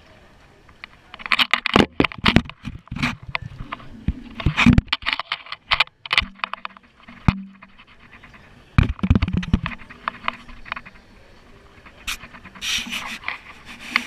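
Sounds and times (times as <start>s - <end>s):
camera housing knocks and rubbing: 1.2s - 10.9s.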